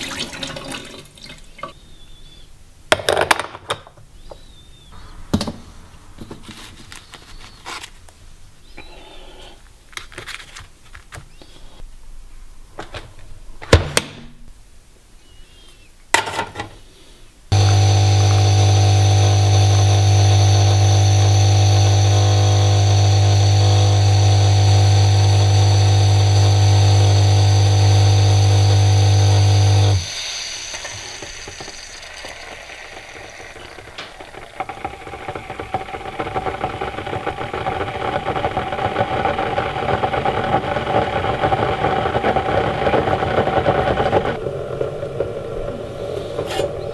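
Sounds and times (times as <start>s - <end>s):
pump buzzing hum: 17.5s - 44.4s
coffee streaming into cup: 17.6s - 46.9s.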